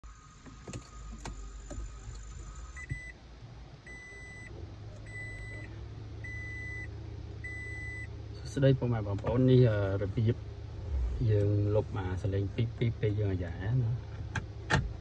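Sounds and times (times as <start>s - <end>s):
low steady hum: 0.0s - 15.0s
reverse warning beeps: 2.6s - 3.2s, 3.9s - 4.5s, 5.1s - 8.1s.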